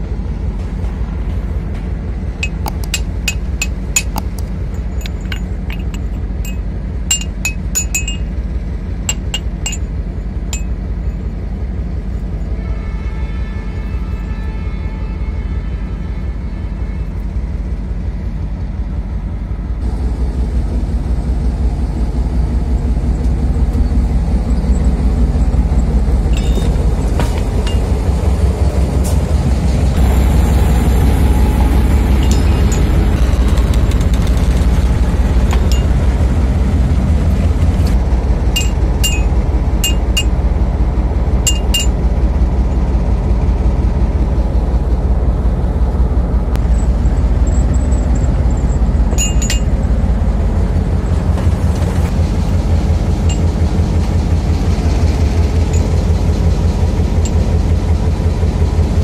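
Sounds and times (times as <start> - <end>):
locomotive engine rumble: 0.0 - 59.0
chisel clinking on steel rail: 2.4 - 8.3, 9.1 - 9.9, 26.3 - 27.9, 32.2 - 33.2, 38.6 - 40.4, 41.5 - 42.0, 47.4 - 49.8.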